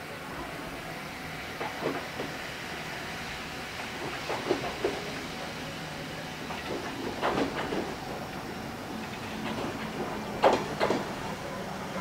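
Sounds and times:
electric train rumbling: 0.0s - 12.0s
wheels clicking over rail joints: 6.5s - 12.0s.

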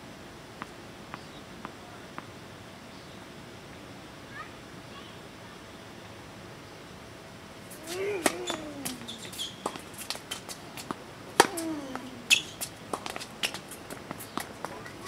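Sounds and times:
racket hitting tennis ball: 7.7s - 15.0s
player grunting: 7.8s - 9.1s
distant ball bouncing pocks: 7.8s - 15.0s.

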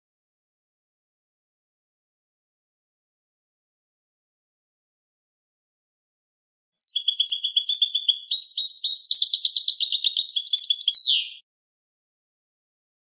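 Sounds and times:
goldfinch twittering song: 6.8s - 11.4s.

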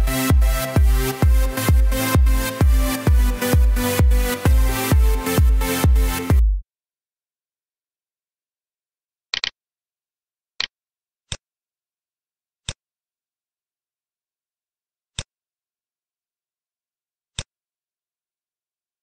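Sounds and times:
computer mouse clicking: 9.4s - 9.6s.

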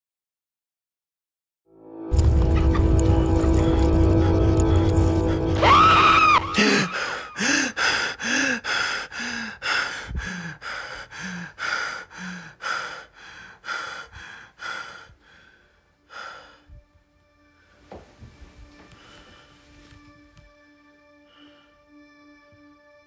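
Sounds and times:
person panting hard: 6.5s - 16.8s, 18.6s - 19.9s.

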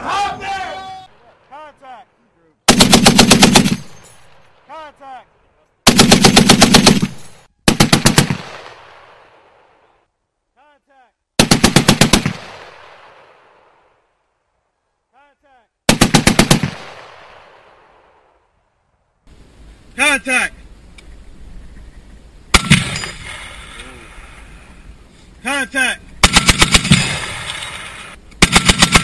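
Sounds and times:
heavy machine gun bursts: 2.7s - 4.0s, 5.9s - 8.5s, 26.2s - 29.0s
gunfire echo: 2.7s - 4.8s, 5.9s - 9.8s, 11.4s - 14.0s, 15.9s - 18.4s, 22.5s - 23.8s, 26.2s - 29.0s.

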